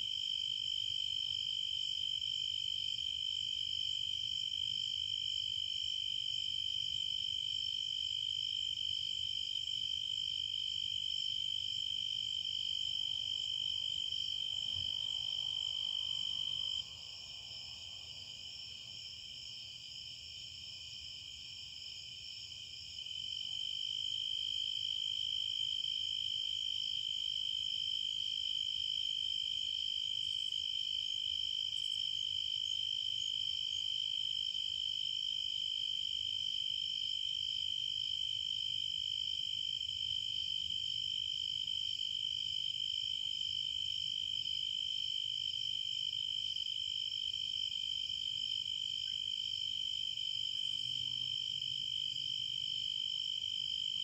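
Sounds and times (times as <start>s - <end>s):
crickets trilling: 30.2s - 34.2s.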